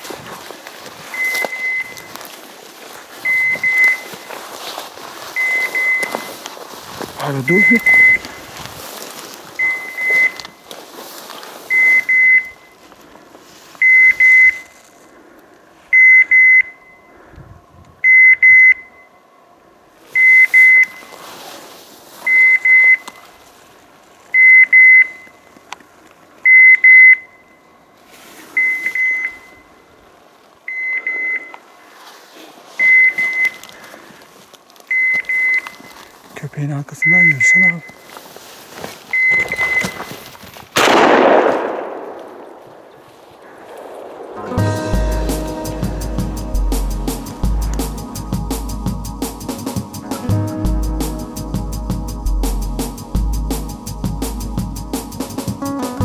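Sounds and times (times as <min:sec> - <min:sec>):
faint rustling of brush: 0:00.0 - 0:16.0, 0:19.9 - 0:24.4, 0:27.9 - 0:36.4, 0:37.2 - 0:40.8
beeper collar short high double beeps: 0:01.1 - 0:02.1, 0:03.3 - 0:04.1, 0:05.4 - 0:06.4, 0:07.2 - 0:08.5, 0:09.6 - 0:10.6, 0:11.7 - 0:12.8, 0:13.8 - 0:14.7, 0:30.7 - 0:31.6.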